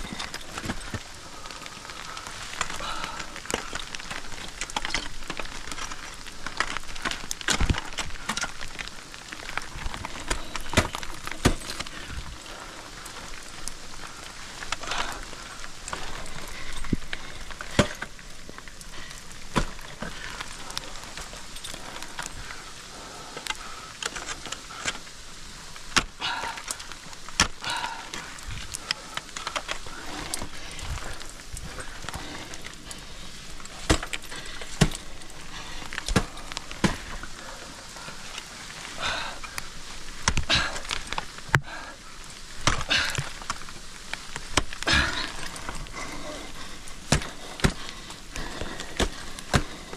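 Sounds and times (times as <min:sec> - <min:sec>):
steady hiss: 0:00.0 - 0:49.9
ice axe striking ice: 0:09.5 - 0:12.1, 0:15.8 - 0:18.2, 0:25.9 - 0:30.4, 0:33.6 - 0:37.3, 0:40.2 - 0:41.7, 0:42.6 - 0:43.7, 0:47.0 - 0:49.9.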